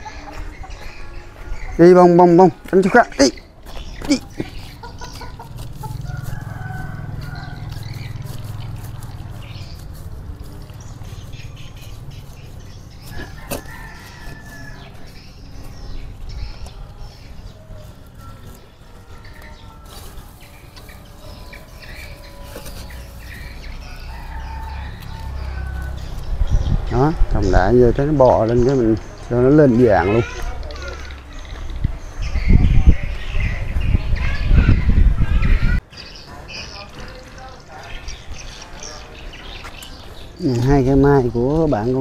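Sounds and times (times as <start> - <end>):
chickens clucking: 0.0 - 25.9.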